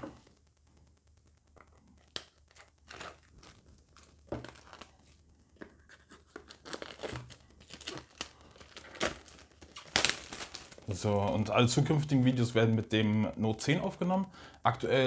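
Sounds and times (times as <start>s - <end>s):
packaging tearing and crinkling: 1.6s - 12.2s.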